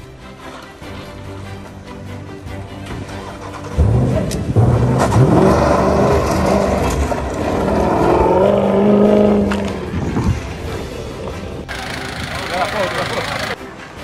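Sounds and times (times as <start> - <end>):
suv engine revving: 3.1 - 10.4.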